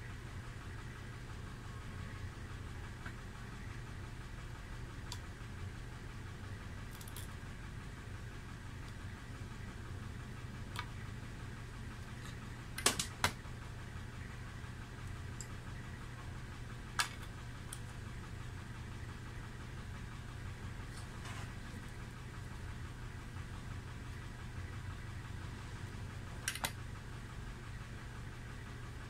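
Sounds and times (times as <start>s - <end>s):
steady low hum: 0.0s - 29.0s
wire cutters clicking: 6.9s - 7.3s, 12.2s - 13.4s, 26.5s - 26.8s.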